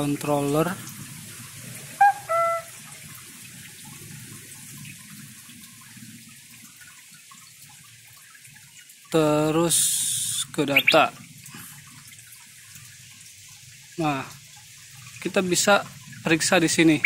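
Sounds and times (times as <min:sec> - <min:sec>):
water running: 0:00.0 - 0:17.0
short high tones: 0:02.0 - 0:02.7.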